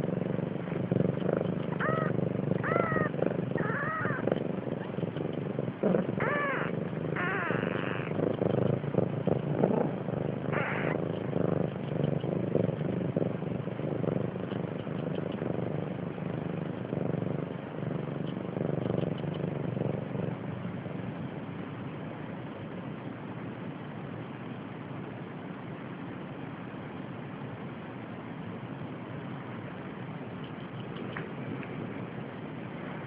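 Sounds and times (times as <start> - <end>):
cat purring: 0.0 - 23.0, 29.5 - 33.0
kitten mewing: 1.7 - 4.9, 5.9 - 8.4, 10.4 - 11.0.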